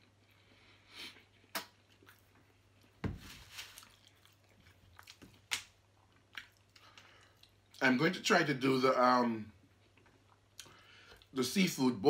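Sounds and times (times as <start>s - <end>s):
person chewing food: 0.0s - 7.8s, 9.6s - 11.4s.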